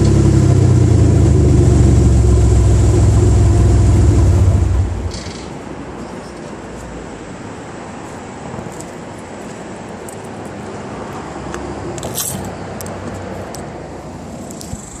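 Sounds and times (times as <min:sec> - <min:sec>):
truck exhaust rumbling: 0:00.0 - 0:05.6
sharp rattle: 0:05.0 - 0:05.6, 0:14.4 - 0:15.0.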